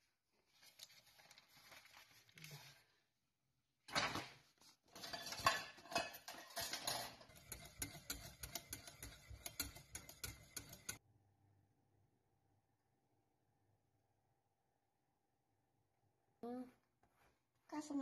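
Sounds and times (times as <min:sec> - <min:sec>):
whisk scraping metal pan: 0:05.0 - 0:11.0.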